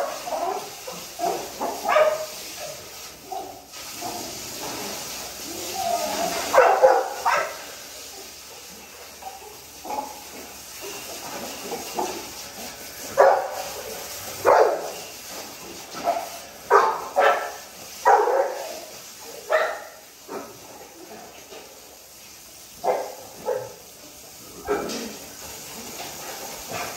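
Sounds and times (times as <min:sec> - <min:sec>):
dogs barking: 0:00.0 - 0:02.4, 0:06.4 - 0:07.7, 0:13.1 - 0:13.7, 0:14.4 - 0:15.0, 0:16.0 - 0:18.8, 0:19.4 - 0:20.1, 0:22.8 - 0:23.8.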